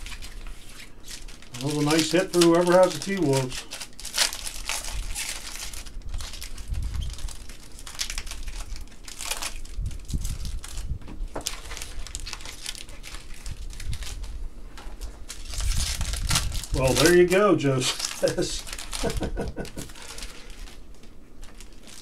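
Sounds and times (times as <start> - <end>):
plastic packaging crinkling: 0.0 - 22.0.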